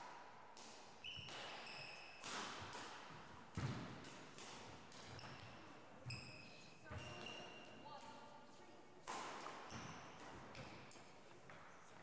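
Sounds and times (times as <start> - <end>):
racket hitting shuttlecock: 0.0 - 6.2, 9.0 - 11.7
shoe squeaks: 1.0 - 2.2, 5.2 - 8.0, 9.6 - 10.9.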